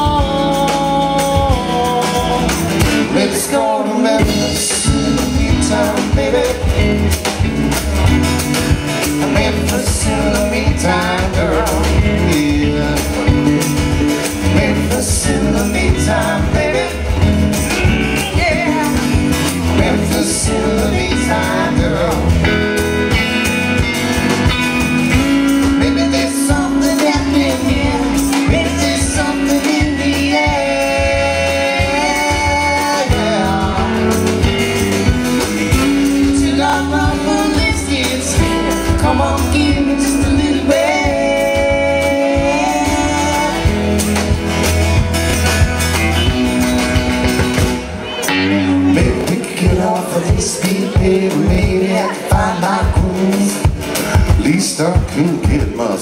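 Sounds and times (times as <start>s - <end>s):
person singing: 0.0s - 7.6s, 8.5s - 23.9s, 25.1s - 44.4s, 48.0s - 56.0s
guitar: 0.0s - 56.0s.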